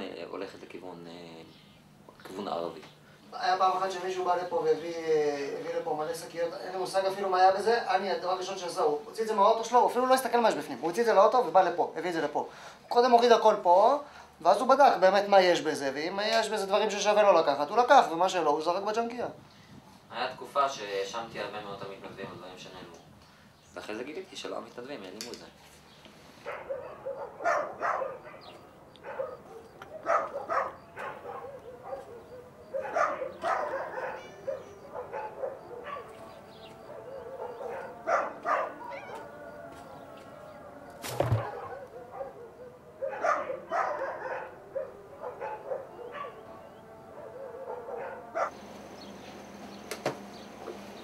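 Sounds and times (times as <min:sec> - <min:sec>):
dogs barking: 0:26.4 - 0:48.7.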